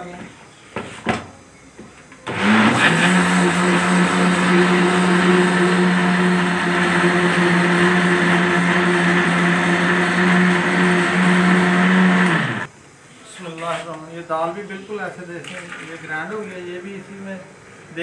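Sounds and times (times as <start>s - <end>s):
mixer grinder running: 2.3s - 12.7s.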